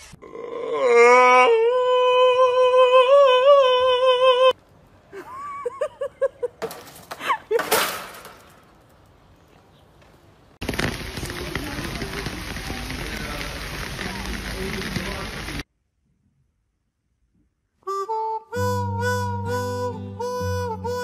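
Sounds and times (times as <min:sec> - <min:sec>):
noisy bursts: 0:10.6 - 0:15.7.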